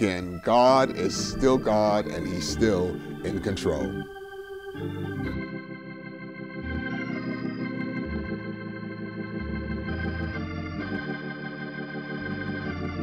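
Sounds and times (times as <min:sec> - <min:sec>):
organ chords: 0:00.0 - 0:13.0
bass line: 0:06.6 - 0:08.6.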